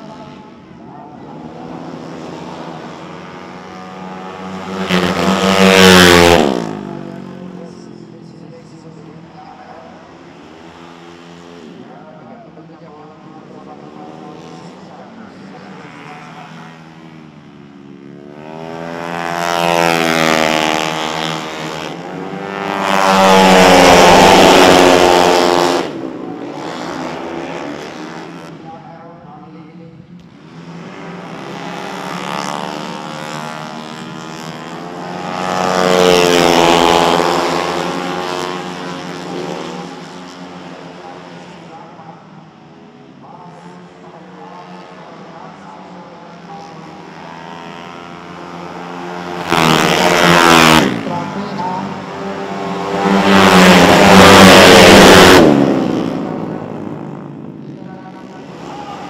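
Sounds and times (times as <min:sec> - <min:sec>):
scooter engine buzzing at high revs: 0:01.3 - 0:07.7, 0:15.6 - 0:28.6, 0:30.3 - 0:41.2, 0:46.4 - 0:59.0.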